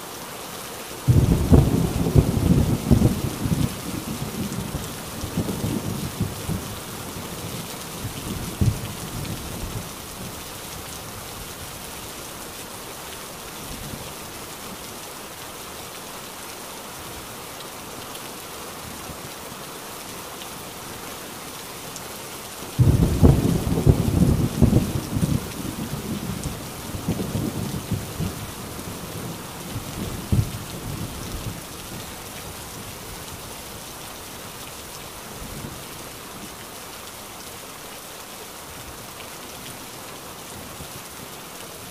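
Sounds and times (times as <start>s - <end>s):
heavy rain: 0.0s - 41.9s
loud thunderclap: 1.1s - 4.0s, 22.8s - 26.4s
thunder rumbling: 1.1s - 6.7s, 22.8s - 31.6s.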